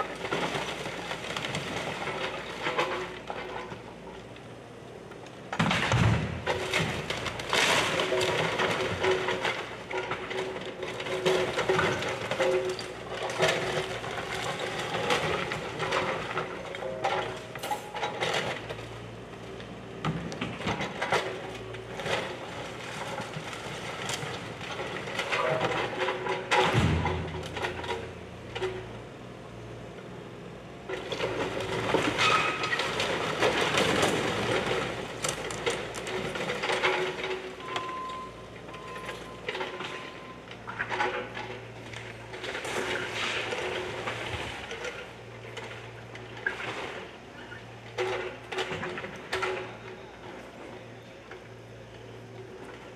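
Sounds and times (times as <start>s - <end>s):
bricks and timber crashing down: 5.6s - 12.7s, 22.0s - 28.0s.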